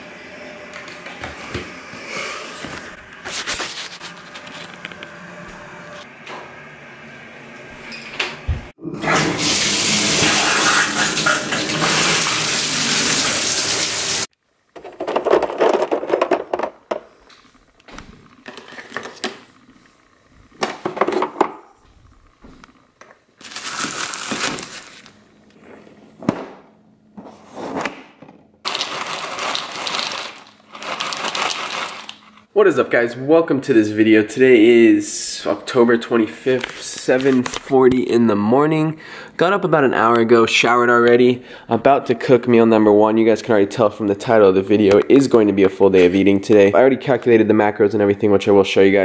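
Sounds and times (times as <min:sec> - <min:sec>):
plastic zip bag rustling: 0:23.4 - 0:25.2, 0:28.6 - 0:32.4
cereal pouring into plastic bowl: 0:28.7 - 0:32.2.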